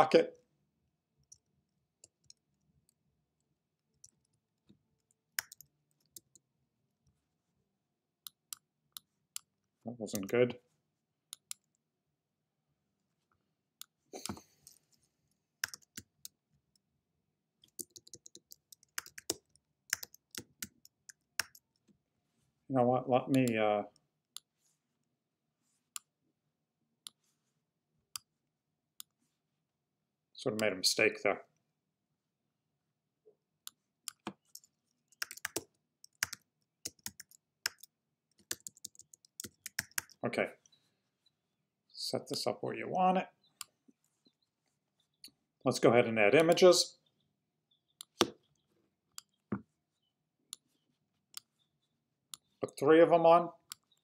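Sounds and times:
keyboard typing: 0:05.0 - 0:06.4, 0:15.6 - 0:16.8, 0:17.6 - 0:21.9, 0:34.0 - 0:40.2
mouse clicks: 0:05.4 - 0:06.4.

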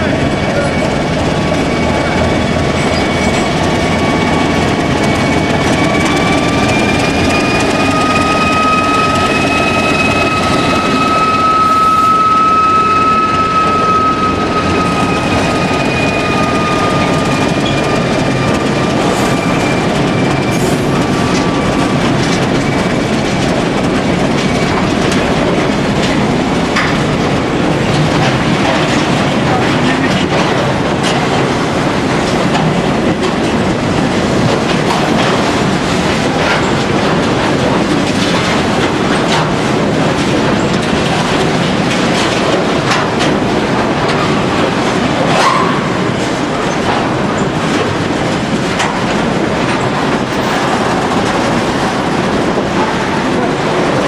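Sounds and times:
train wheels rumbling on rail: 0:00.0 - 0:54.0
wheels clacking over rail joints: 0:00.0 - 0:54.0
high wheel squeal: 0:00.1 - 0:23.7.

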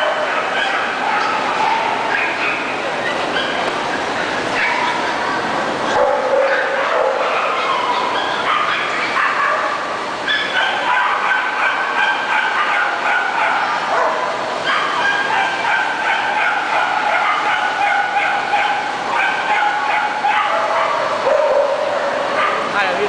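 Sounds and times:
dogs whining and yapping: 0:00.0 - 0:05.2, 0:05.9 - 0:21.8.

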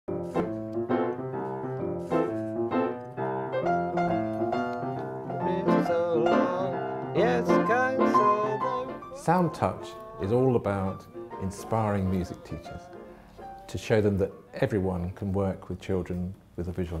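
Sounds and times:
piano chords: 0:00.1 - 0:15.1.

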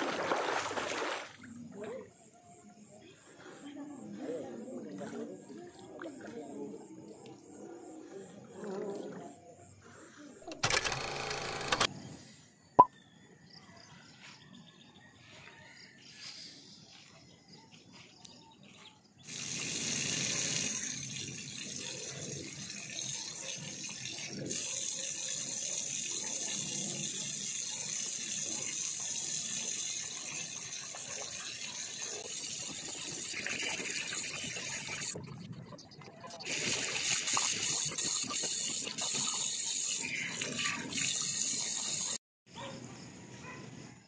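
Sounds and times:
tap water running into a sink: 0:19.3 - 0:35.2, 0:36.4 - 0:42.2.

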